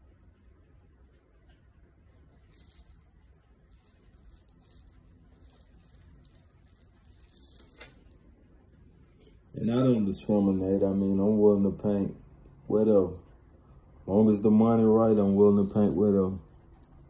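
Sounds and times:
small handling noises: 1.1s - 10.2s, 12.8s - 17.0s
plastic sheet rustling: 2.4s - 8.4s, 14.6s - 17.0s.

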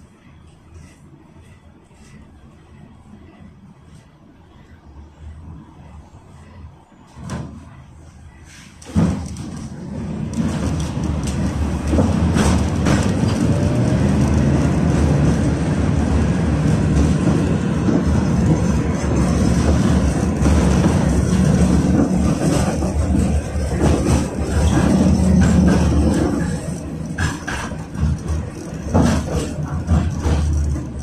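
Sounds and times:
tram wheels rumbling on rails: 0.0s - 31.0s
tram jolting: 7.2s - 31.0s.

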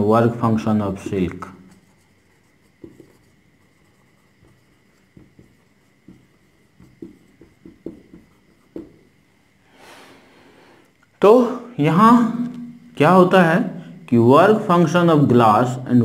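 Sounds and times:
marker writing on whiteboard: 0.8s - 9.2s.

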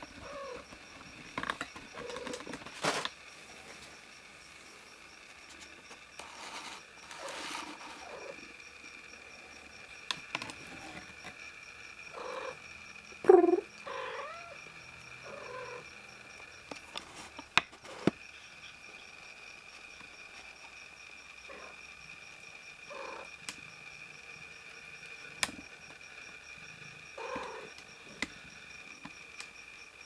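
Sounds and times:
kittens mewing: 13.2s - 14.6s.

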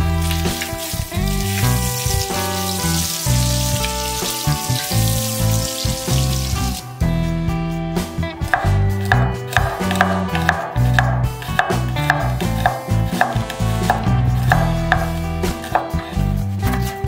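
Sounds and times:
bacon sizzling in hot oil: 0.0s - 6.9s
background music: 0.0s - 17.0s.

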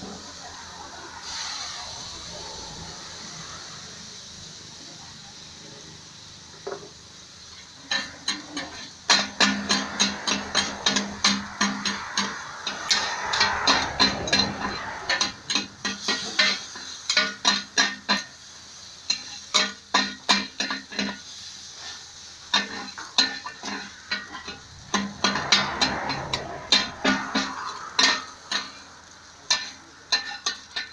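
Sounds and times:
frying sizzle: 0.0s - 30.9s
metal ladles clanking on a wok: 6.6s - 30.9s.

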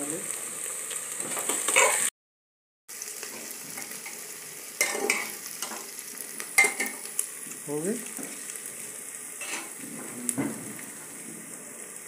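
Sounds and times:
masala sizzling in hot oil: 0.0s - 2.1s, 2.9s - 12.0s
metal ladle scraping pot: 9.4s - 9.7s.

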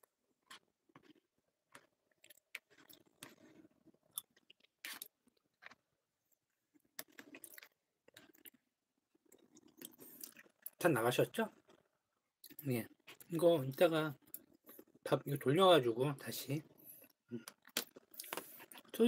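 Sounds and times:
person chewing food: 0.0s - 10.8s, 11.5s - 13.3s, 14.2s - 15.0s, 16.6s - 19.0s.

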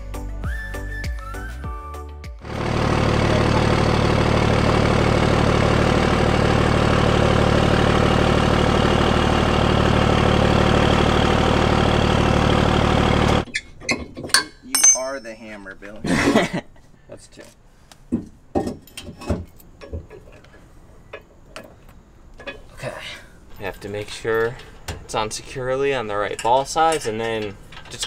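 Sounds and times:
truck engine idling: 2.4s - 13.5s
metal hitch clinks: 13.5s - 15.7s, 26.2s - 28.0s.

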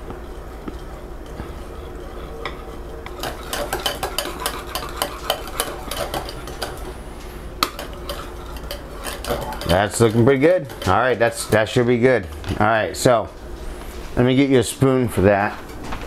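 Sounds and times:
whisk beating in a bowl: 0.7s - 13.2s.

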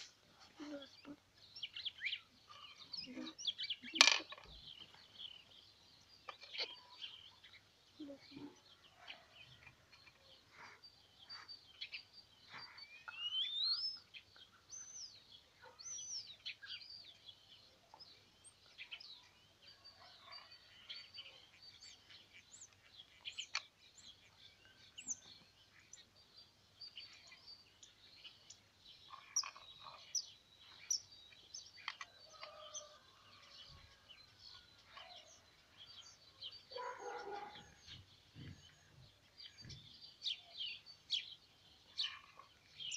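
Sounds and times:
small birds chirping: 0.0s - 42.9s
rising whistled bird call: 12.8s - 14.0s.

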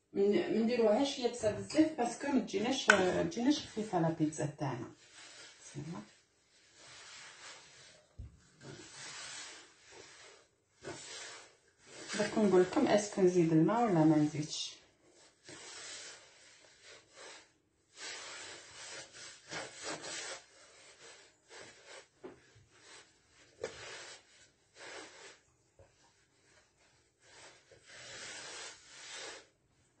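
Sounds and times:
hands kneading dough in wooden bowl: 1.4s - 4.0s, 7.1s - 14.2s.

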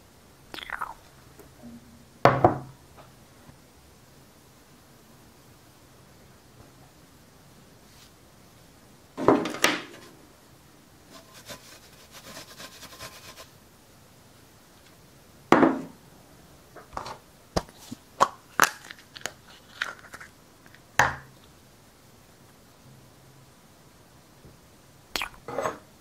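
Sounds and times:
soft rustling: 7.8s - 8.2s.

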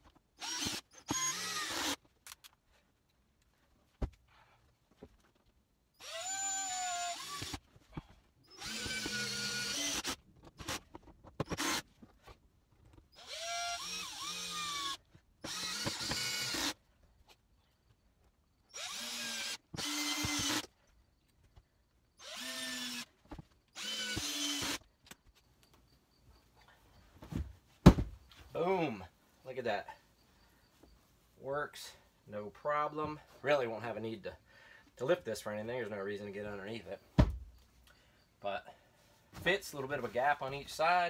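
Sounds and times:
cordless drill driving screws: 0.4s - 2.0s, 6.0s - 7.6s, 8.5s - 11.9s, 13.2s - 16.8s, 18.7s - 20.7s, 22.2s - 23.1s, 23.8s - 24.9s.

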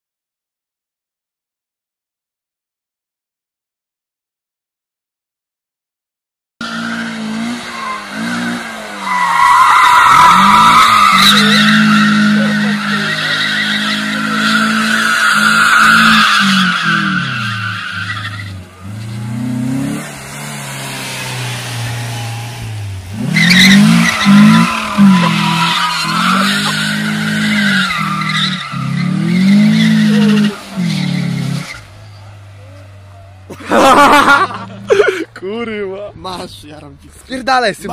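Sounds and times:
tyres squealing on concrete: 6.6s - 19.9s, 21.7s - 35.2s
car engine revving: 6.6s - 35.3s.

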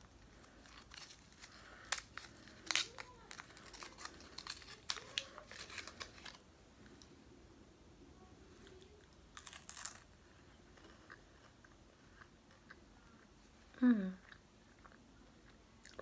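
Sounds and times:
candy wrapper crinkling and tearing: 0.0s - 6.6s, 8.7s - 10.2s.

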